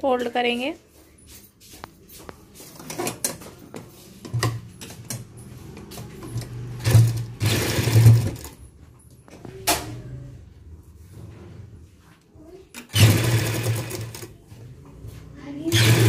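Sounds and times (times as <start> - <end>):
sewing machine stitching: 5.8 - 8.6, 12.8 - 14.3, 15.7 - 16.0.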